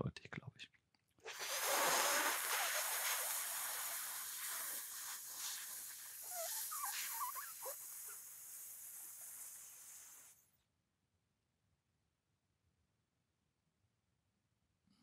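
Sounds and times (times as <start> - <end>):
long hissing inhale: 1.3 - 10.4
squeaky whistles of air: 6.1 - 10.1.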